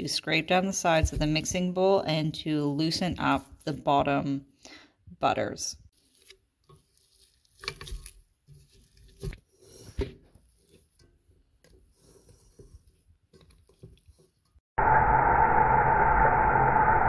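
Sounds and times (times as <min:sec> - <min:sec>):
spatula scraping metal bowl: 0:05.9 - 0:14.5.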